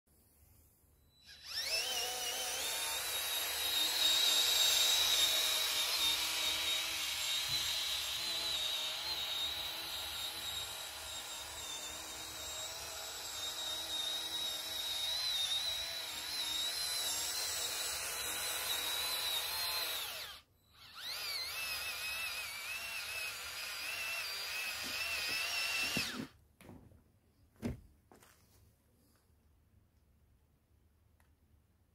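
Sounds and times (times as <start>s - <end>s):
toy tractor motors whining: 1.1s - 26.4s.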